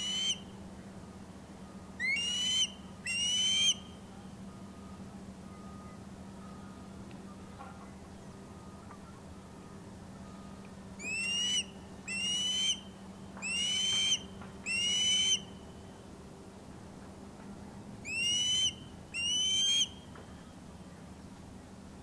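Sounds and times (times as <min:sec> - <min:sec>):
osprey whistled calls: 0:00.0 - 0:00.6, 0:01.9 - 0:06.8, 0:11.0 - 0:16.0, 0:18.0 - 0:20.5
faint low hum: 0:00.0 - 0:22.0.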